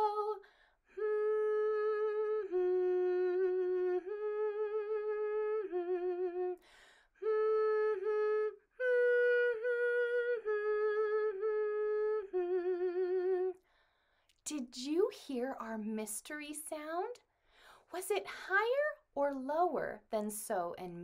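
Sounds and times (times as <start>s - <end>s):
woman humming a melody: 1.0s - 6.6s, 7.2s - 13.6s.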